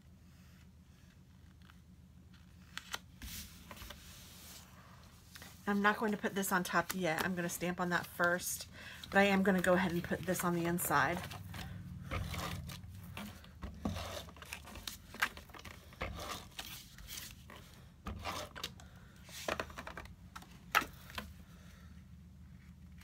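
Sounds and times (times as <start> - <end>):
tape gun rasping: 12.0 - 17.0.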